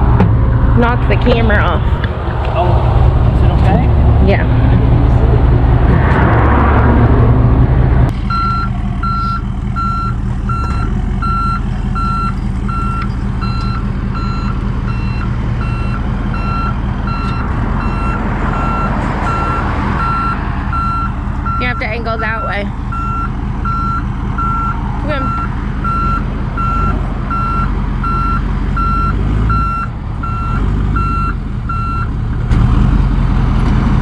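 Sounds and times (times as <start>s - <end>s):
loud low engine rumble: 0.0s - 34.0s
truck engine running: 0.0s - 34.0s
reverse alarm beeping: 8.3s - 32.1s.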